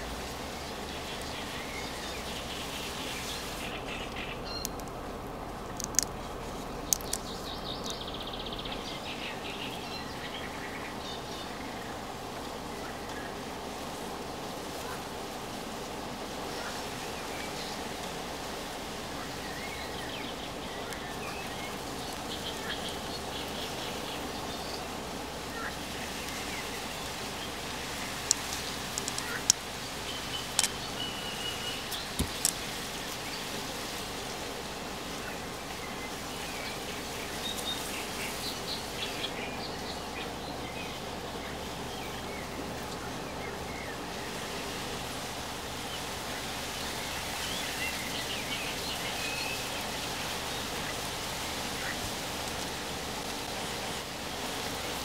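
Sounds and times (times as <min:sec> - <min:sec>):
steady hiss: 0:00.0 - 0:55.0
bird chirps: 0:01.6 - 0:04.8, 0:30.1 - 0:32.6
sharp clicks: 0:05.8 - 0:06.2, 0:06.9 - 0:07.4, 0:28.2 - 0:29.6, 0:30.5 - 0:30.8.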